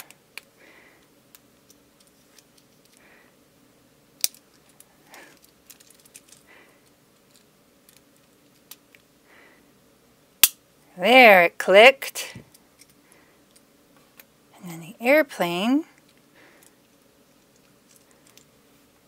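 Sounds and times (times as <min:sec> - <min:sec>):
plastic pieces clicking together: 0:04.2 - 0:06.5, 0:07.2 - 0:09.1
plastic pieces rustling: 0:04.2 - 0:09.0.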